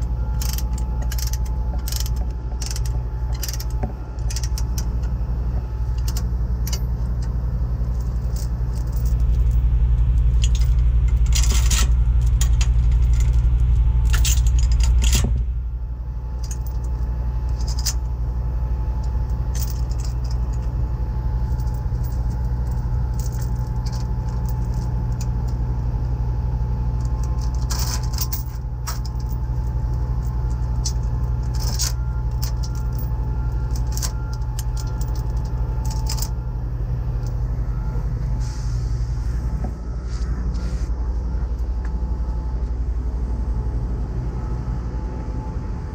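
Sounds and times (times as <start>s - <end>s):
steel chain clinking and rattling: 0.0s - 15.4s, 16.2s - 25.6s, 26.8s - 36.5s
truck engine idling: 0.0s - 45.9s.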